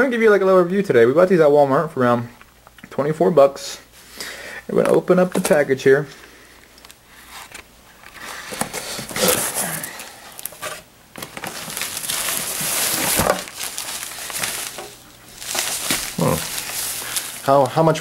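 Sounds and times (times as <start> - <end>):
packaging rustling: 7.2 - 18.0
cardboard flaps scraping: 10.5 - 17.6.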